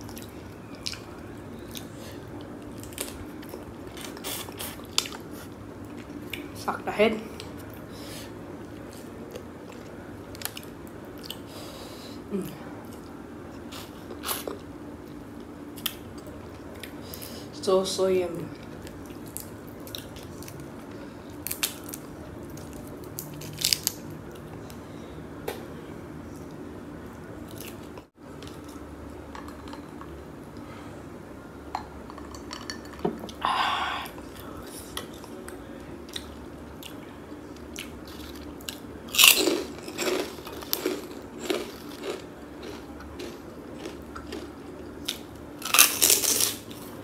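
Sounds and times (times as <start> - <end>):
chewing and biting seafood: 37.8 - 46.6.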